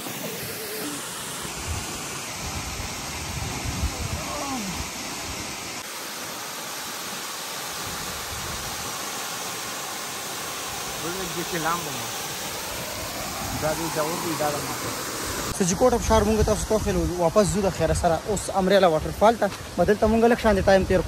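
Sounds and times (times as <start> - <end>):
waterfall rushing: 0.0 - 20.5
faint voice: 3.8 - 4.8.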